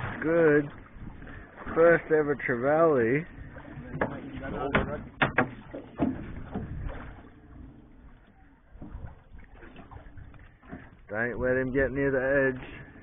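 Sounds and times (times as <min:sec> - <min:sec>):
water around hull: 0:00.0 - 0:13.0
knocks on boat deck: 0:03.9 - 0:06.8.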